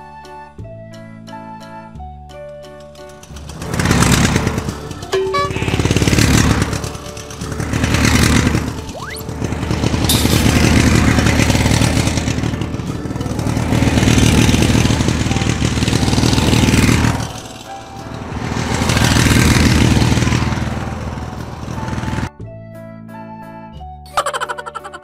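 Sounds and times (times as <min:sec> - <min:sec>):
toy motorcycle engine-revving sound: 0:03.1 - 0:17.8.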